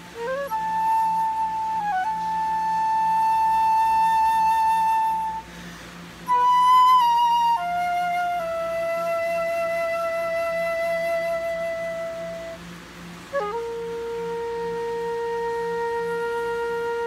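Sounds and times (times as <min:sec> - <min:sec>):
flute playing held notes: 0:00.0 - 0:17.0
flute player breath: 0:05.4 - 0:06.2.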